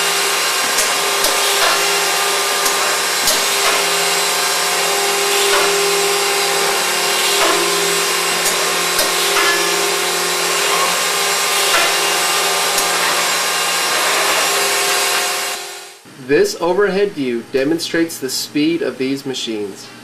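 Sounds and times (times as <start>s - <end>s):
drill boring into wood ticks: 0.0s - 15.7s
drilling machine humming: 0.0s - 16.0s.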